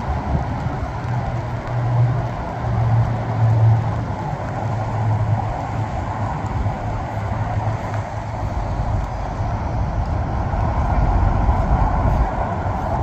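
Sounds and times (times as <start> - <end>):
highway traffic rumble: 0.0 - 13.0
wind rumble on microphone: 0.0 - 13.0.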